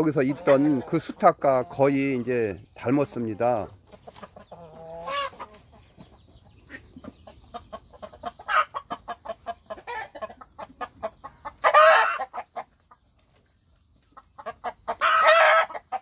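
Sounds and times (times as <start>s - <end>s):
chickens clucking: 0.0s - 16.0s
loud chicken call: 4.6s - 5.6s, 11.4s - 12.5s, 14.8s - 16.0s.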